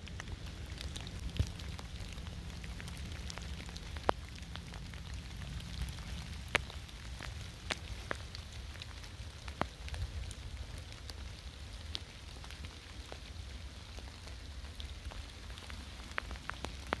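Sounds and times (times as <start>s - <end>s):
low rumble: 0.0s - 8.8s
steady rain: 0.0s - 17.0s.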